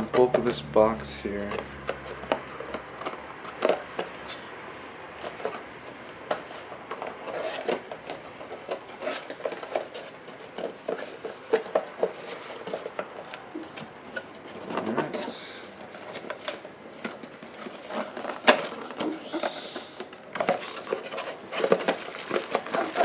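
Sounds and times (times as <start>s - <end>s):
cardboard rubbing and scraping: 6.4s - 13.9s, 14.5s - 23.0s.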